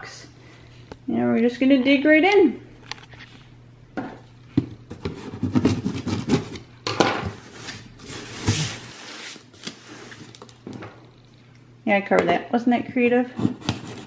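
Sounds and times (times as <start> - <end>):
cardboard scraping and rustling: 7.3 - 10.4.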